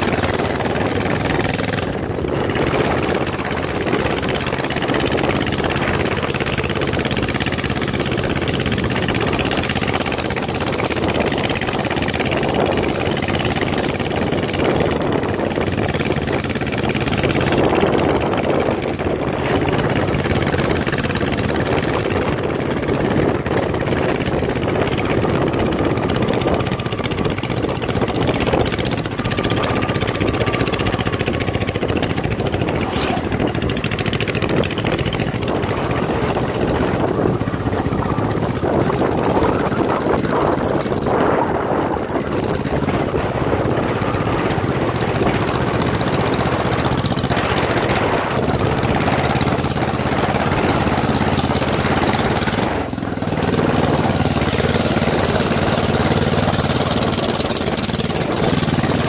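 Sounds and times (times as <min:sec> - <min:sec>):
motorcycle engine running: 0:00.0 - 0:59.0
wind rush: 0:00.0 - 0:59.0
tyre noise on dirt: 0:32.7 - 0:33.5.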